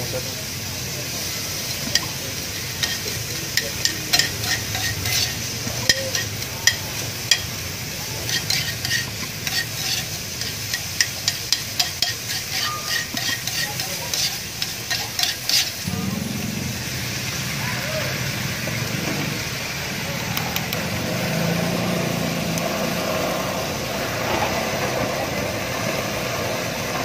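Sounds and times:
chicken and onion sizzling: 0.0s - 27.0s
spatula scraping pan: 1.9s - 15.9s.

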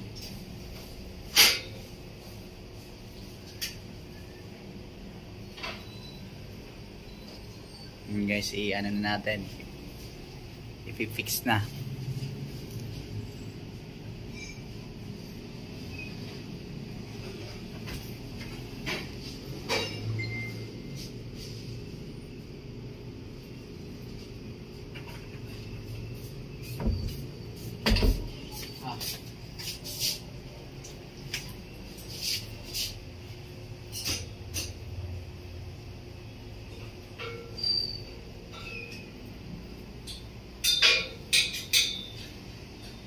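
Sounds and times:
high metallic ring: 19.7s - 20.8s, 37.2s - 39.1s, 40.0s - 42.3s.

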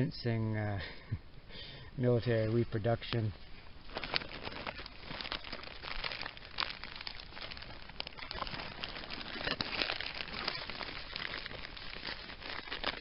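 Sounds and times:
plastic bag crinkling: 3.7s - 13.0s.

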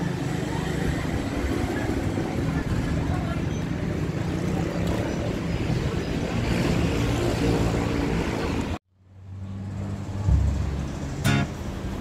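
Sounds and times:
street traffic noise: 0.0s - 12.0s
vehicle engine running: 9.8s - 12.0s
music: 10.3s - 12.0s.

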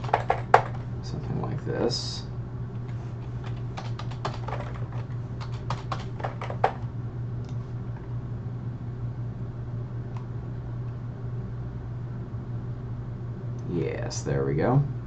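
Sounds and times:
typing on a keyboard: 0.0s - 0.8s, 3.4s - 6.8s
steady low hum: 0.0s - 15.0s.

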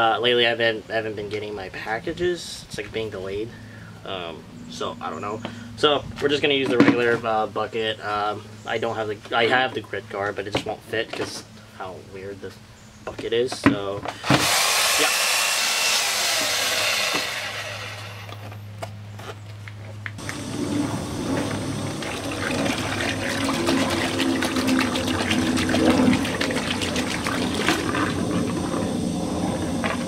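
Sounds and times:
hose water splashing into bucket: 21.4s - 28.9s.

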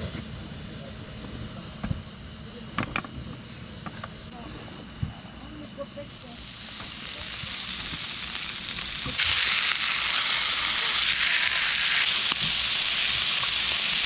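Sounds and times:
meat sizzling in a hot pan: 6.1s - 14.0s.

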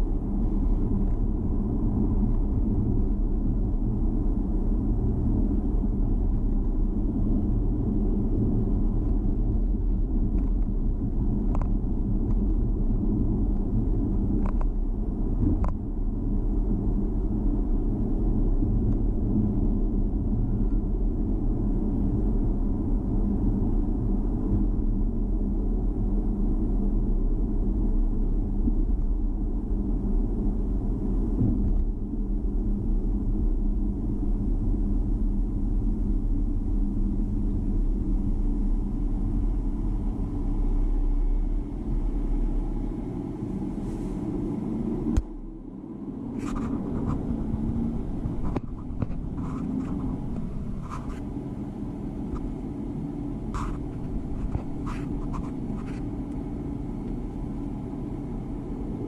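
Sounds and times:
car road and engine rumble: 0.0s - 59.0s
car engine idling: 37.7s - 58.6s.

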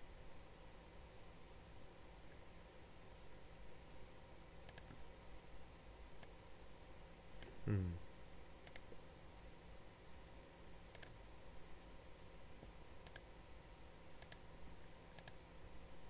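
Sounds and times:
faint room hum: 0.0s - 16.0s
computer mouse clicks: 4.6s - 5.0s, 8.6s - 8.9s, 10.9s - 11.2s, 13.0s - 13.3s, 14.2s - 14.5s, 15.1s - 15.4s.

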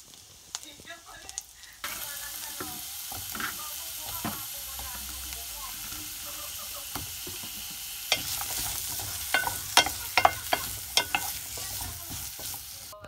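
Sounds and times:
vegetables sizzling in hot oil: 0.0s - 13.0s
wooden spatula knocking pot: 6.9s - 12.8s.

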